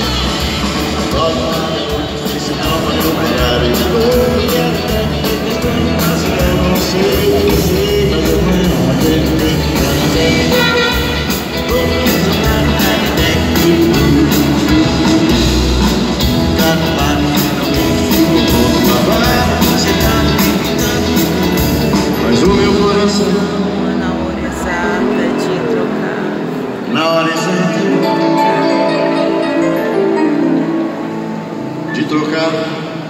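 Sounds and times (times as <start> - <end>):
man singing: 0.0 - 31.0
live rock band playing: 0.0 - 33.0.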